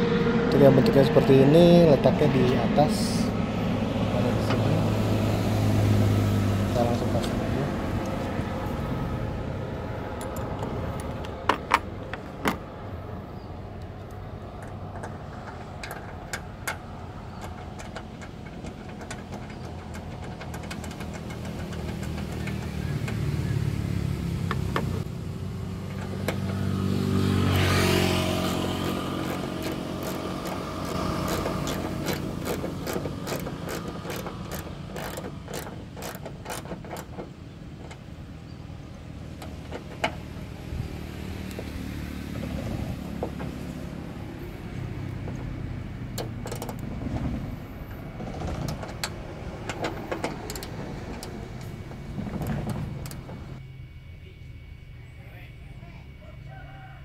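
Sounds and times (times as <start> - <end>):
vehicle passing close by: 0.0 - 17.8, 18.8 - 36.2, 38.7 - 53.6
road traffic: 0.0 - 57.0
ratchet wrench clicking: 15.8 - 23.2, 28.4 - 37.2.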